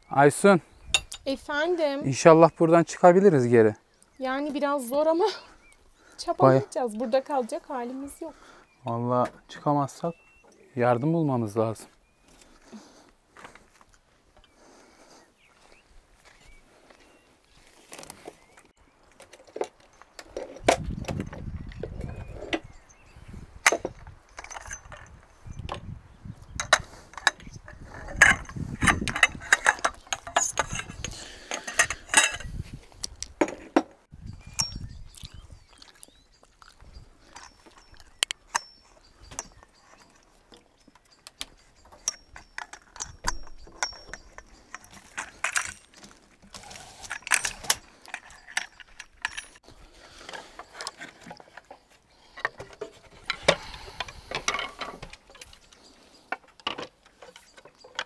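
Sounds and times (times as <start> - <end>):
metallic clicks knocks and rattles: 37.3 - 46.2, 47.0 - 49.7.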